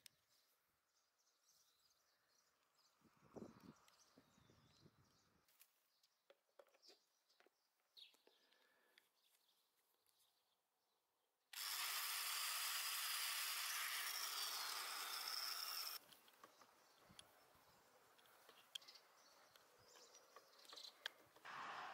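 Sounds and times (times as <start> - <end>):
electric drill whine: 11.5 - 16.0.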